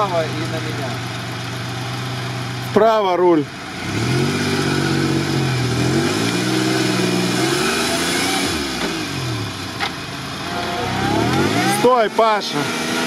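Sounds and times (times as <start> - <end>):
truck engine revving: 3.8 - 13.0.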